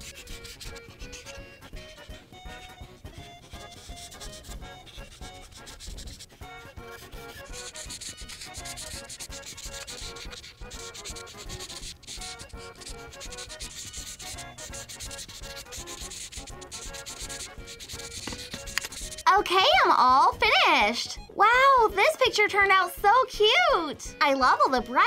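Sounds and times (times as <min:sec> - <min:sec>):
marker rubbing on paper: 0:00.0 - 0:01.5, 0:02.6 - 0:19.3.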